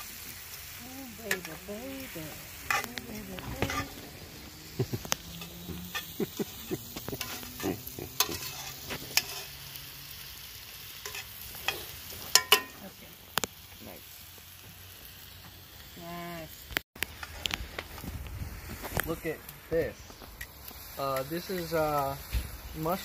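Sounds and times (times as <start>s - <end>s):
onions sizzling in a skillet: 0.0s - 23.0s
metal tongs clinking on pan: 1.3s - 1.7s, 2.7s - 3.9s, 7.2s - 9.6s, 11.0s - 13.0s.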